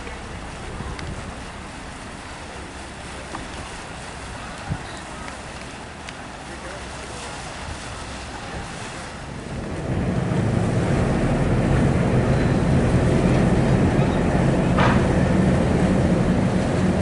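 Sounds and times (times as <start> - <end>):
propeller wash churning: 0.0 - 17.0
ship engines droning: 0.0 - 17.0
waves: 0.0 - 17.0
wind: 0.0 - 17.0.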